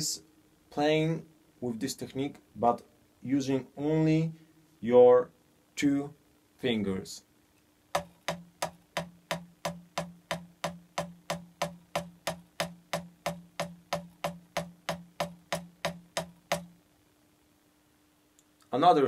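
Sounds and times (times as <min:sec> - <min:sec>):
drumstick on practice pad: 0:07.9 - 0:16.8.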